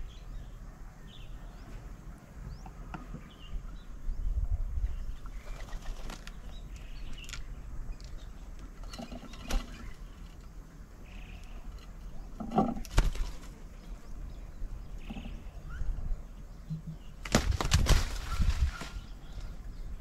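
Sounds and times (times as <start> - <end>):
bird wings flapping: 5.5 - 6.4, 12.8 - 13.6, 17.2 - 19.2.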